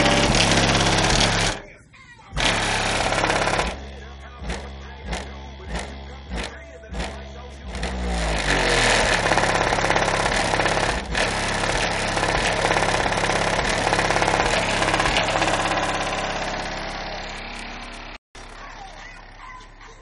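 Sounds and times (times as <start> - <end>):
harsh buzz: 0.0 - 1.8, 2.4 - 19.8
deep subwoofer bass notes: 2.4 - 9.3.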